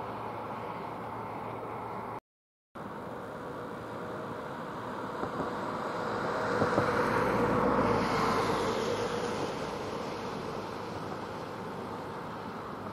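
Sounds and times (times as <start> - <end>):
road vehicle passing by: 2.8 - 12.9.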